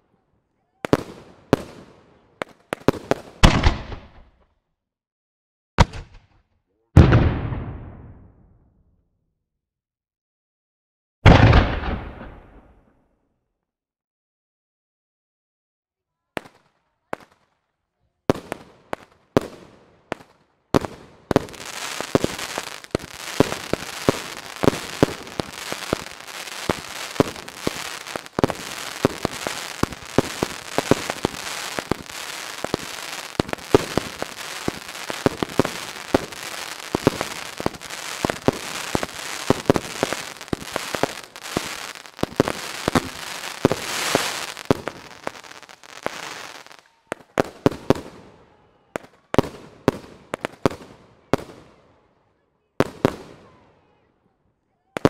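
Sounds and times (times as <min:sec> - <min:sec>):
firework bangs: 0:02.7 - 0:04.3, 0:11.2 - 0:12.8, 0:18.3 - 0:48.2
fireworks crackling: 0:18.3 - 0:48.2.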